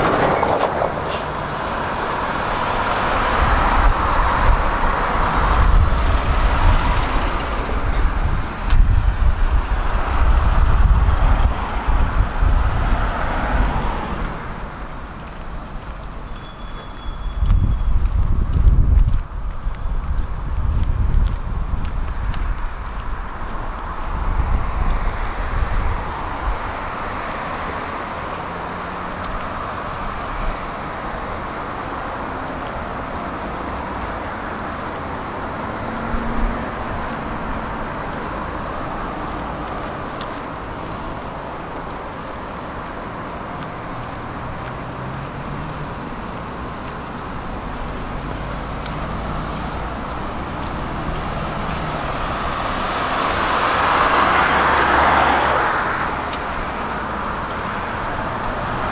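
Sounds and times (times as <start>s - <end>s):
vehicle approaching: 0.0s - 16.2s, 17.5s - 58.9s
road traffic noise: 0.0s - 58.9s.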